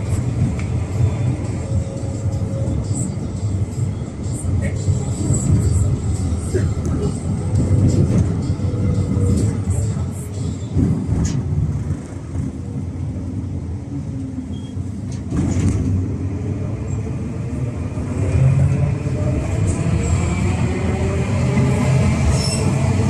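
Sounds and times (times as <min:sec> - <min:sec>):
tram rumbling on rails: 0:00.0 - 0:23.0.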